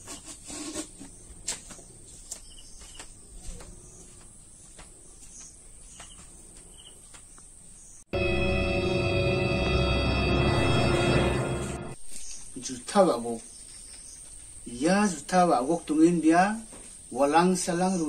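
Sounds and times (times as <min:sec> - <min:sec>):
loud music: 0:08.1 - 0:12.0
insect drone: 0:08.2 - 0:12.4.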